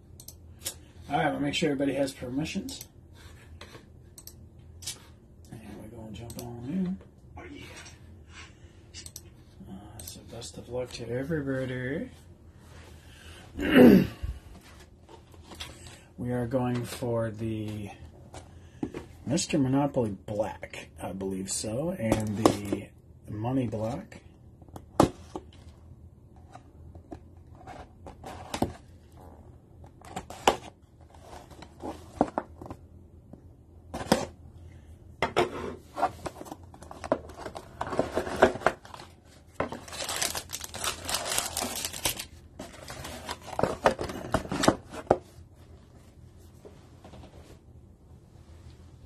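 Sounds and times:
foil packs tearing and rustling: 39.8s - 43.6s.

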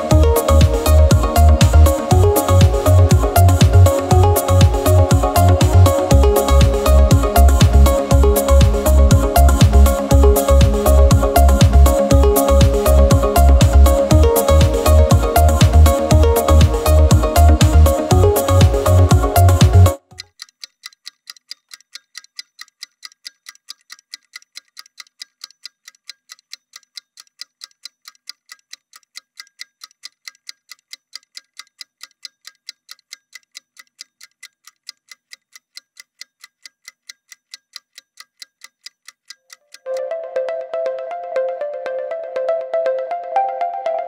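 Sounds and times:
upbeat music: 0.0s - 20.1s, 39.9s - 44.0s
clock-like ticking: 0.0s - 44.0s.

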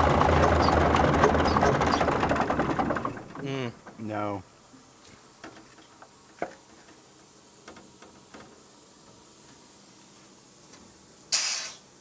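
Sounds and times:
hiss of escaping gas: 7.2s - 12.0s.

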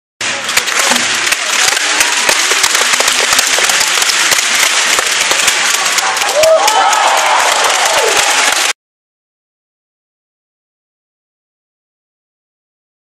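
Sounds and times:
spectators clapping: 0.2s - 8.8s.

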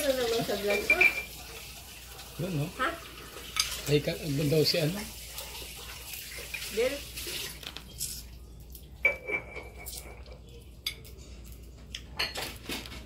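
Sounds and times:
dishes and cutlery clinking: 0.2s - 1.6s, 3.4s - 4.0s, 9.0s - 13.0s.

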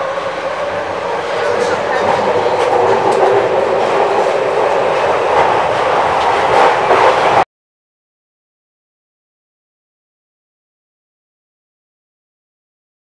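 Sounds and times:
subway train wheels rumbling: 0.0s - 7.4s.

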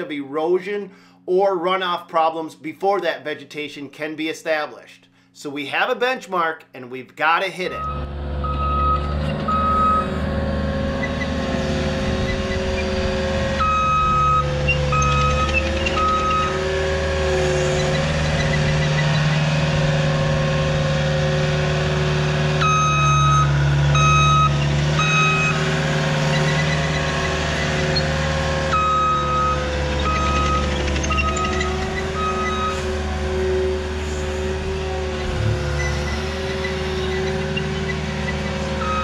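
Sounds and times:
back-up alarm beeping: 7.7s - 10.2s, 13.6s - 16.7s, 22.6s - 25.6s, 28.7s - 32.9s, 38.8s - 39.0s
diesel engine running: 7.8s - 39.0s.

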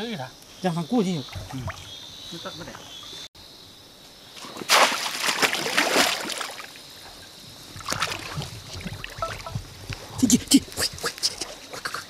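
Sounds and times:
muddy water splashing: 1.2s - 2.0s, 4.4s - 12.0s.

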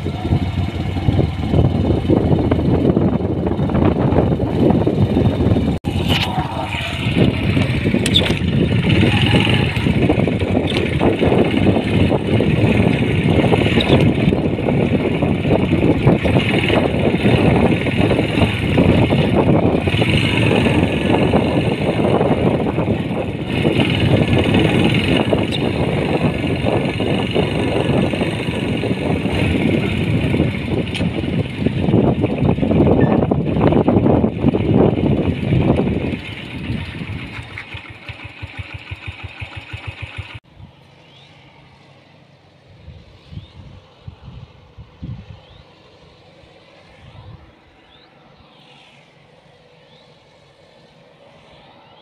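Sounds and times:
motorcycle engine running: 0.0s - 40.7s
gusty wind rumbles: 0.0s - 52.0s.

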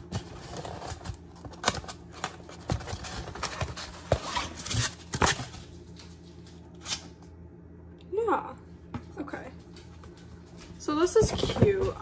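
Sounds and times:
packaging crinkling and tapping: 0.0s - 6.5s
low steady hum: 0.0s - 12.0s.

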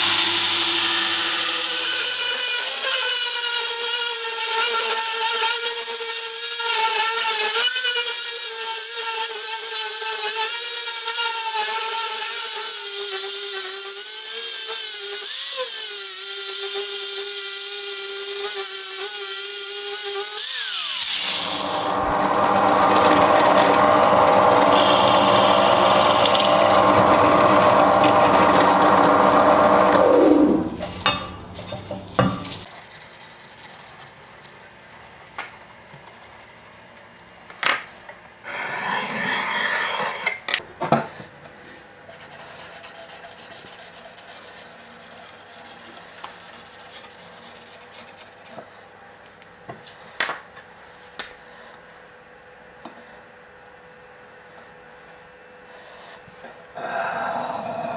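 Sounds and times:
angle grinder on steel: 0.0s - 30.6s.

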